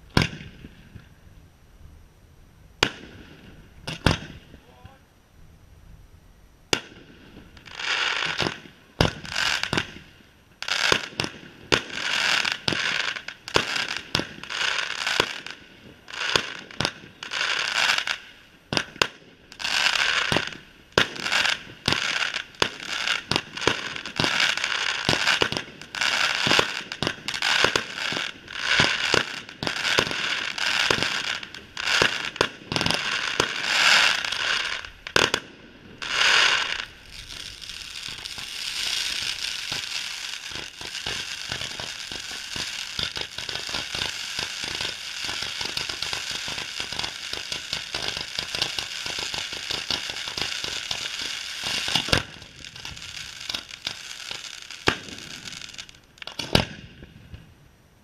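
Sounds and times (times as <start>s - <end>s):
firework crackle: 0.0s - 1.3s, 2.8s - 4.8s, 6.7s - 57.6s
firework shells bursting: 20.0s - 57.4s.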